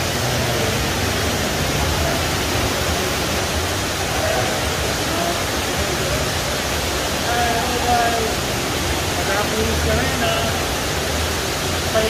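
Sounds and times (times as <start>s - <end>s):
faint indistinct voices: 0.1s - 12.0s.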